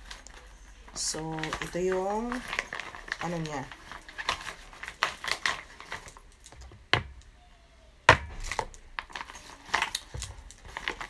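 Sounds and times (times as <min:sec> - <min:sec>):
plastic containers clicking: 0:01.0 - 0:07.3.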